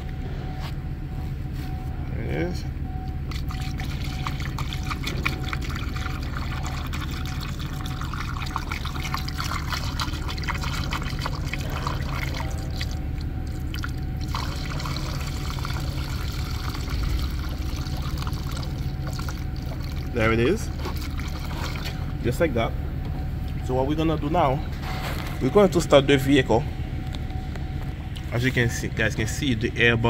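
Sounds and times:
low steady hum: 0.0 - 30.0
liquid pouring through funnel: 3.3 - 22.2.

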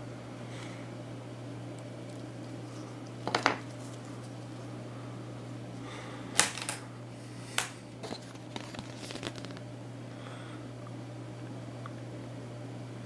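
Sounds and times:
plastic wrapping crinkling: 8.2 - 9.6.

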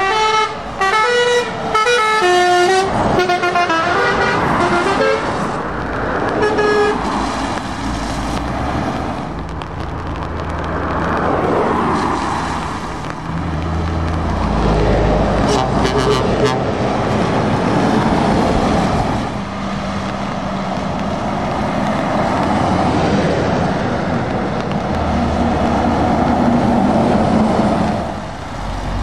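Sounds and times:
musical air horn tune: 0.0 - 5.4, 6.4 - 7.0, 15.4 - 16.6
vehicles passing on wet road: 0.0 - 29.0
diesel truck engine droning: 13.1 - 29.0.

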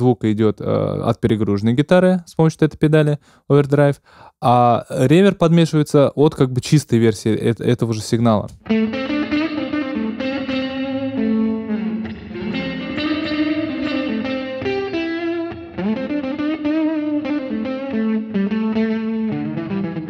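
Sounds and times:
overdriven electric guitar solo: 8.6 - 20.0.

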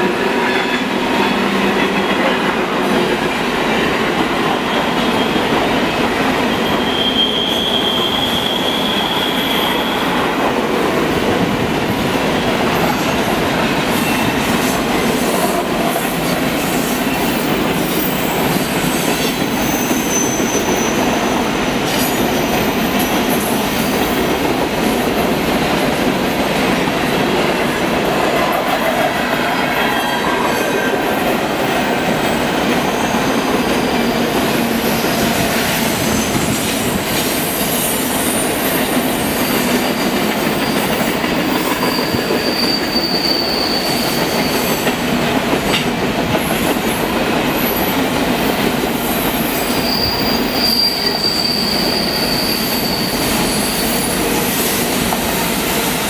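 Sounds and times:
train wheels rumbling on rails: 0.0 - 56.0
high-pitched wheel squeal: 6.5 - 10.2, 17.2 - 21.1, 41.5 - 44.8, 49.7 - 54.2.

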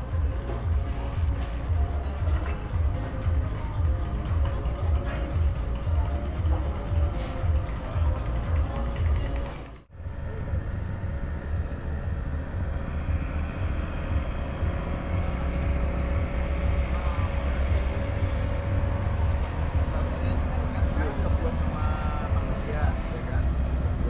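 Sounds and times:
vehicle engine rumble: 0.0 - 24.0.

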